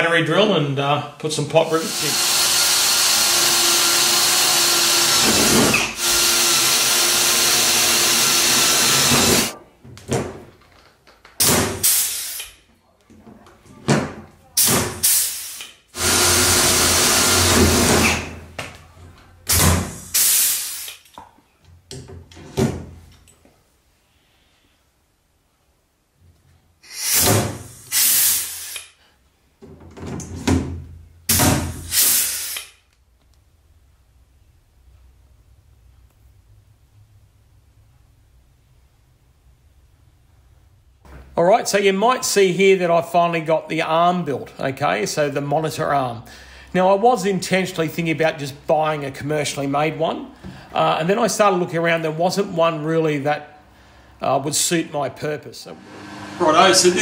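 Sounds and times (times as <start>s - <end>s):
cordless drill drilling metal: 1.7s - 9.5s, 15.0s - 18.3s, 31.8s - 32.7s, 55.8s - 57.0s
rivet gun air hisses: 11.8s - 12.6s, 15.0s - 15.8s, 19.6s - 21.1s, 26.8s - 29.0s, 31.8s - 32.9s.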